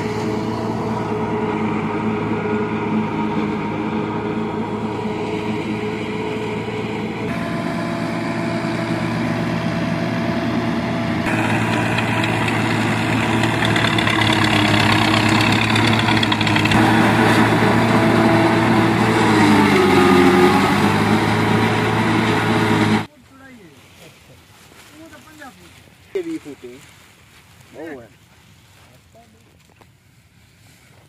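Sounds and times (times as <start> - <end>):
harvester chopper rush: 0.0 - 23.1
tractor engine running hard: 0.0 - 23.1.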